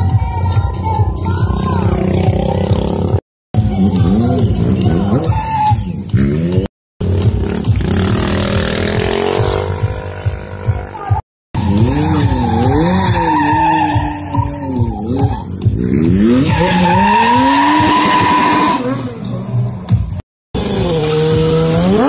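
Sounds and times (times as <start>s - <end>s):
motorcycle engine revving: 1.2s - 22.0s
tyres screeching on asphalt: 11.6s - 19.9s.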